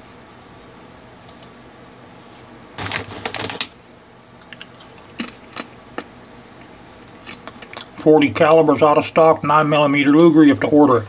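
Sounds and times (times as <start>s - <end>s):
steady high hiss: 3.5s - 11.0s.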